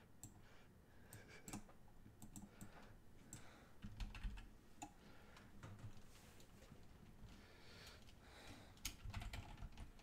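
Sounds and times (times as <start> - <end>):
keyboard typing clicks: 1.4 - 5.0, 8.8 - 10.0.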